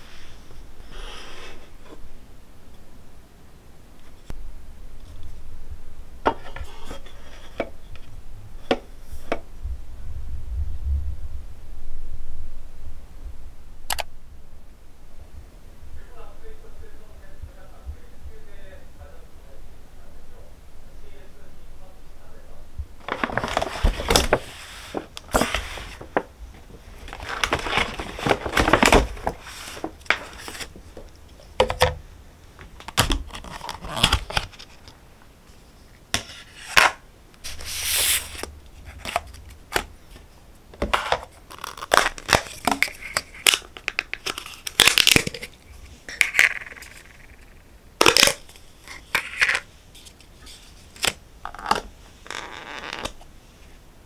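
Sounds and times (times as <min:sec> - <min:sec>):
plastic film tearing and crinkling: 0:23.0 - 0:30.8, 0:32.8 - 0:34.9, 0:40.9 - 0:47.2, 0:48.0 - 0:50.2
plastic lids pulled off containers: 0:27.0 - 0:32.0, 0:40.8 - 0:47.4, 0:48.0 - 0:50.2.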